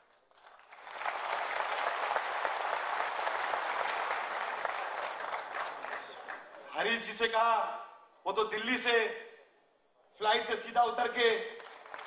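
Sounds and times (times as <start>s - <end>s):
crowd applauding: 0.0s - 6.7s, 11.6s - 12.0s.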